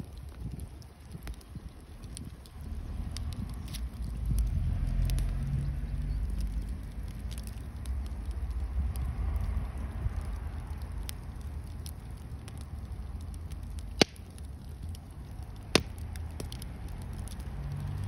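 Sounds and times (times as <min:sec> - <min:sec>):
fire crackling: 0:00.0 - 0:18.0
low rumble: 0:02.4 - 0:18.0
sharp loud pops: 0:14.0 - 0:14.3, 0:15.7 - 0:16.0.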